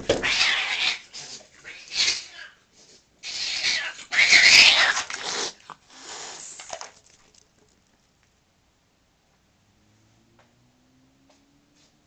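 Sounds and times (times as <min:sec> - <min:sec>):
cat screeching yowls: 0:00.1 - 0:02.6, 0:03.2 - 0:05.6
cat hissing: 0:00.2 - 0:02.6, 0:03.2 - 0:06.8.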